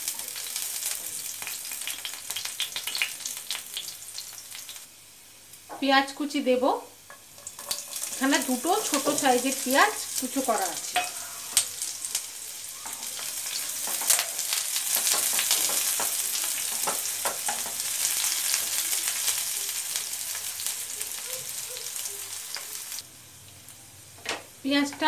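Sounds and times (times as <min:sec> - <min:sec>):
onions sizzling in hot oil: 0:00.0 - 0:25.0
spatula scraping pan: 0:07.1 - 0:11.6.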